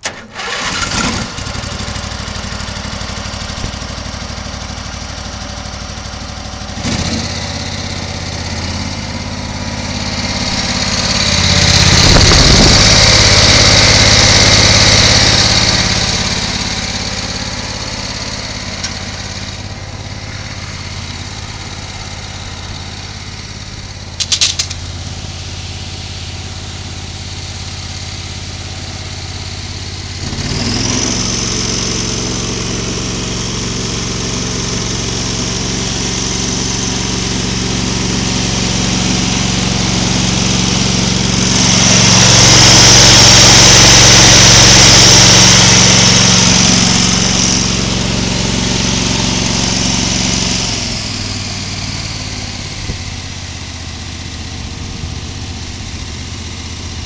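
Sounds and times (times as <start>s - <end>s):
small gasoline engine running: 0.0s - 57.0s
strong hiss: 24.1s - 29.3s.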